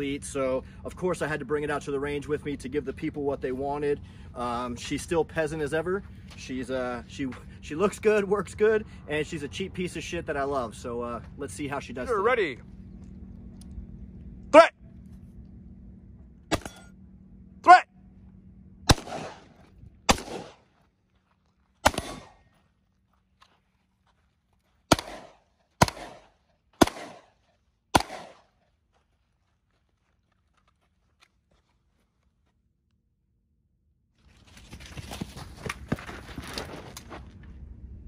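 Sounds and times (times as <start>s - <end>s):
rifle shots echoing: 18.9s - 20.7s, 21.8s - 22.5s, 24.9s - 28.5s.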